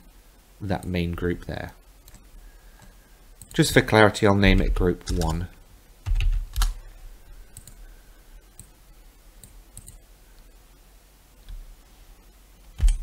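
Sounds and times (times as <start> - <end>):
computer mouse clicks: 2.0 - 3.6, 5.0 - 5.4, 6.1 - 6.8, 7.5 - 7.8, 8.5 - 8.8, 9.4 - 10.0.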